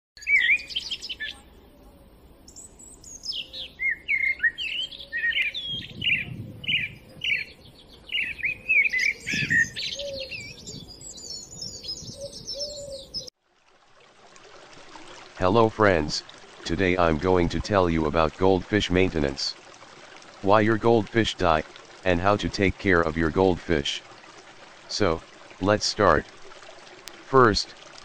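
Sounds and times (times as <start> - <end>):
songbird chirping and warbling: 0.2 - 13.3.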